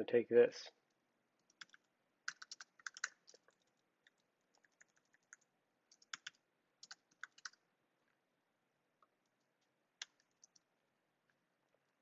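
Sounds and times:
typing on computer keyboard: 1.4 - 7.6, 10.0 - 10.6.

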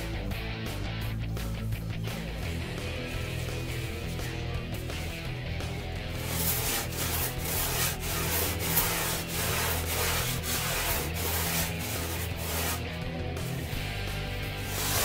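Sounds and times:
hand sanding rasping strokes: 2.4 - 4.4, 6.1 - 13.8, 14.4 - 15.0.

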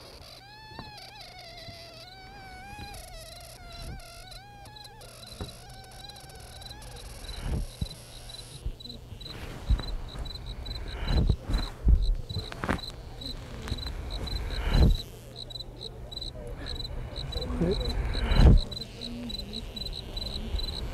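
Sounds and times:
high cricket-like chirp pulsing: 0.0 - 20.9
low thuds and rustles: 7.2 - 8.0, 8.6 - 12.9, 13.7 - 15.0, 18.2 - 18.7.

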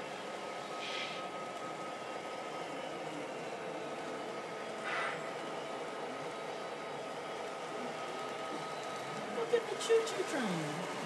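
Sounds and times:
model train mechanical hum: 0.0 - 11.0
brief hisses: 0.8 - 1.2, 4.8 - 5.2.

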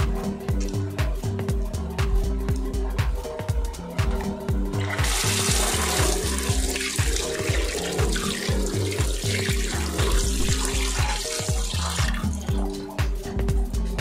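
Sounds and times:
background music with steady beat: 0.0 - 14.0
tap water running into sink: 4.1 - 13.1.

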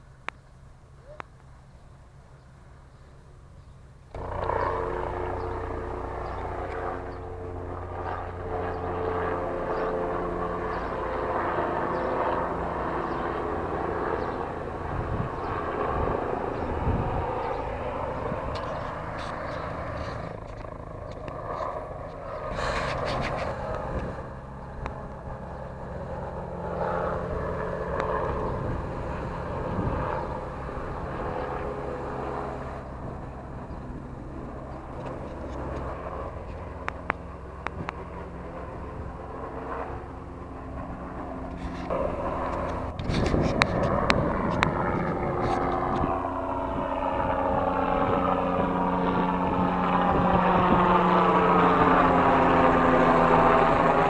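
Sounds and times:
helicopter: 0.0 - 54.0.

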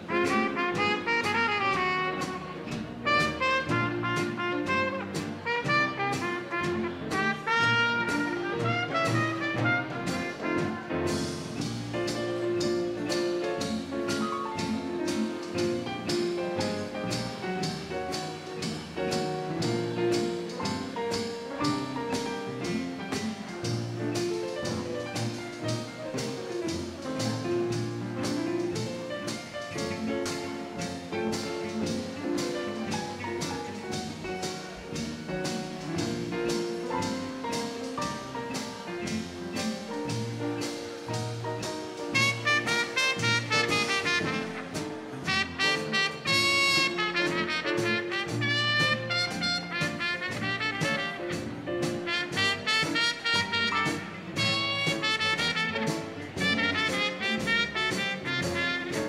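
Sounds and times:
brass horn melody: 0.0 - 11.4, 42.1 - 59.0
dance band playing jazz: 0.0 - 59.0
steady drum beat: 0.0 - 59.0.

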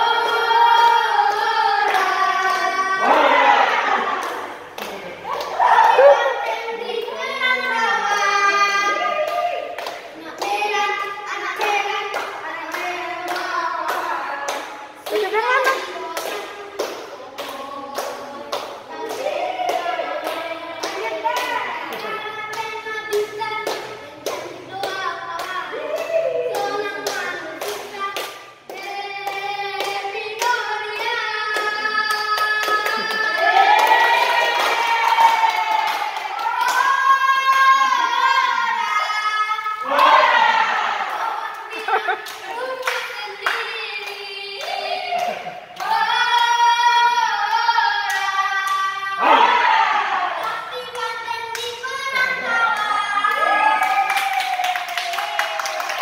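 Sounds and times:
boy singing: 0.0 - 3.8, 5.9 - 33.9, 36.4 - 40.0, 41.2 - 49.5, 50.4 - 53.6
people clapping along: 0.0 - 56.0
boy singing high notes: 36.6 - 40.0.

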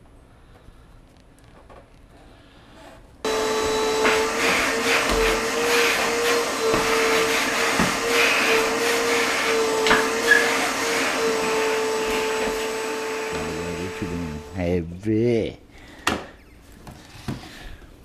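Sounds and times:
shop vacuum running: 3.2 - 14.8
hose dragged over tiled floor: 3.3 - 14.2.

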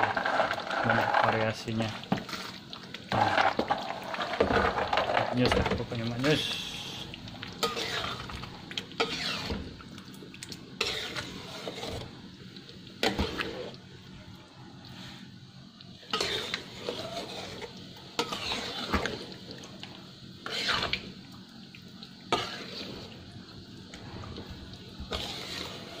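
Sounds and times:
spoon scraping sauce in wok: 7.6 - 8.2, 10.8 - 12.0, 22.4 - 23.0, 25.1 - 26.0.

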